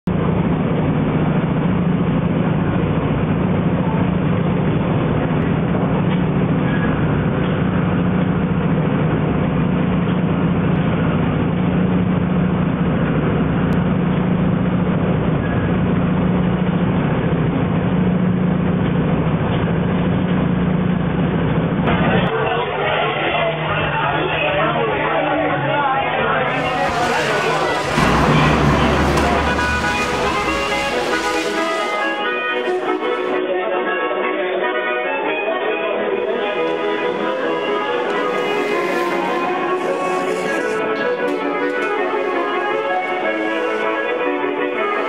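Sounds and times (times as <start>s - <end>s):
train rumbling: 26.4s - 33.4s, 36.0s - 45.0s
constant low hum: 26.5s - 33.4s.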